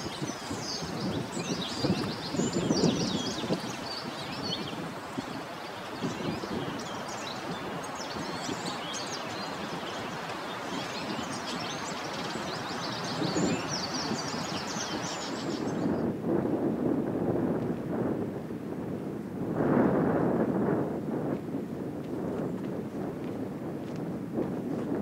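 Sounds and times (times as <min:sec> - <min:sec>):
small birds chirping: 0:00.0 - 0:16.0
wind through vegetation: 0:00.0 - 0:25.0.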